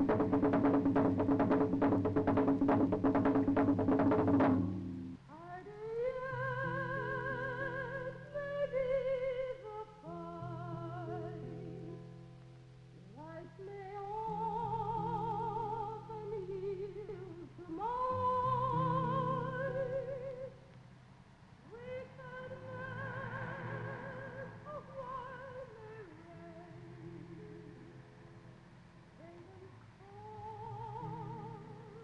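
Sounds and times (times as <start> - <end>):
solo voice singing with vibrato: 5.3 - 12.0, 13.1 - 20.6, 21.6 - 28.2, 29.2 - 32.0.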